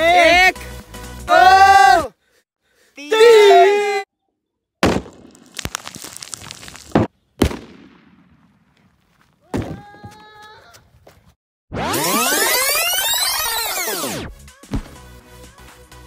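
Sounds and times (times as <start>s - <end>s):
firecracker bangs: 4.8s - 8.6s
crackling: 4.8s - 9.2s.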